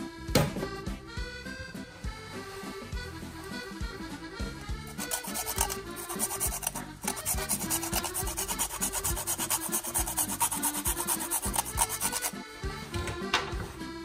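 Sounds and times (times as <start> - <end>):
accordion waltz music: 0.0 - 14.0
nutmeg rasping on metal grater: 4.9 - 12.4.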